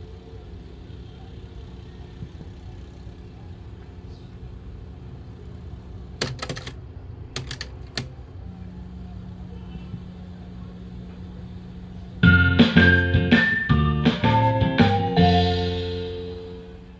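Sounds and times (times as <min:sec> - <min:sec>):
mechanical clicks: 0:06.2 - 0:06.8, 0:07.4 - 0:08.2.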